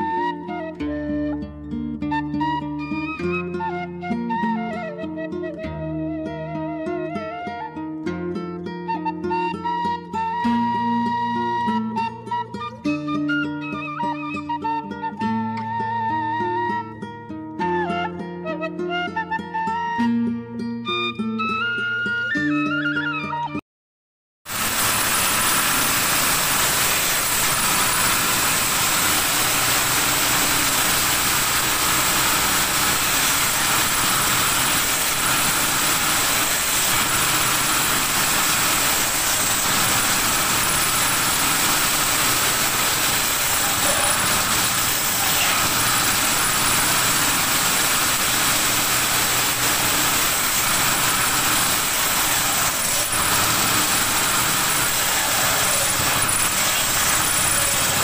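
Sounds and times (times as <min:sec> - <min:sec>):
circular saw whining: 0:24.5 - 0:58.0
saw cutting wood: 0:24.5 - 0:58.0.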